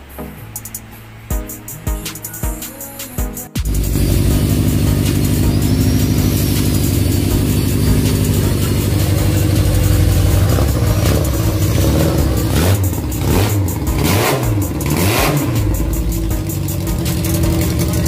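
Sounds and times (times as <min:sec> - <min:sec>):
motorcycle engine revving: 0:03.7 - 0:18.0.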